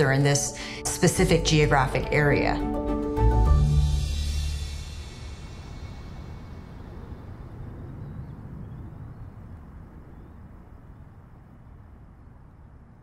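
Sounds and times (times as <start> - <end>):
low steady rumble: 3.5 - 13.0.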